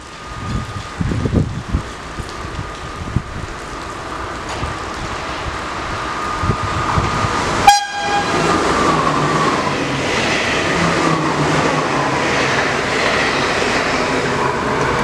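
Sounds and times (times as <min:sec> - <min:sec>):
train wheels rushing on rails: 0:00.0 - 0:15.0
train horn blast: 0:07.6 - 0:08.6.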